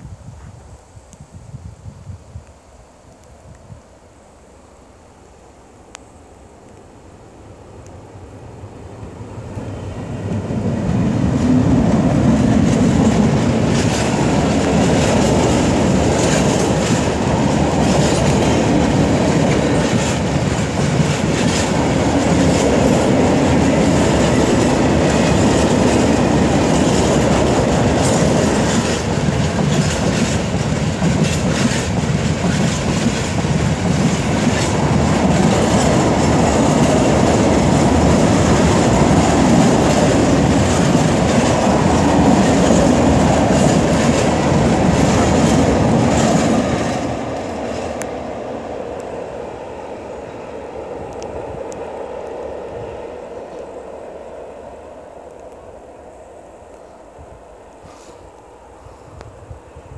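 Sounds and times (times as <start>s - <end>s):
diesel locomotive passing: 4.3s - 59.9s
train wagons rumbling: 9.2s - 49.4s
wheels clicking over rail joints: 10.2s - 48.2s.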